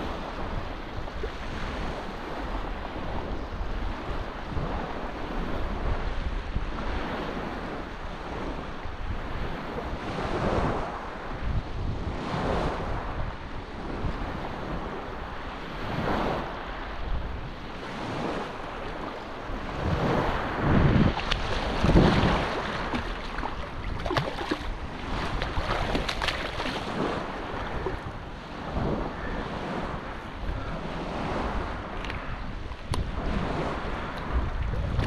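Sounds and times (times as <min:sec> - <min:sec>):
wind on microphone: 0:00.0 - 0:35.0
small surf washing: 0:13.9 - 0:35.0
fish splashing and thrashing: 0:21.1 - 0:27.1.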